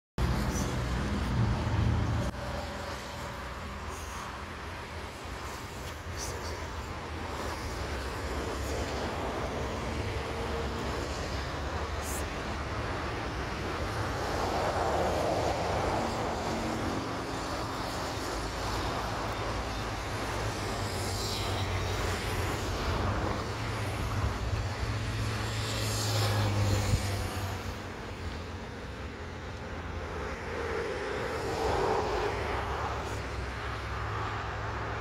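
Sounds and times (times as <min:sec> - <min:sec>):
distant jet airliner engine: 0:00.2 - 0:35.0
road traffic hissing past: 0:00.2 - 0:35.0.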